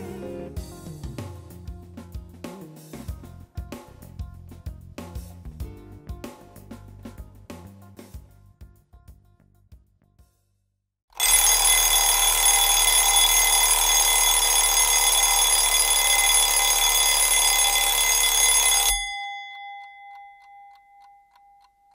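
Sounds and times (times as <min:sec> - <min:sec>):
alarm clock bell ringing: 0:11.2 - 0:21.9
clock ticking faintly: 0:19.0 - 0:21.9.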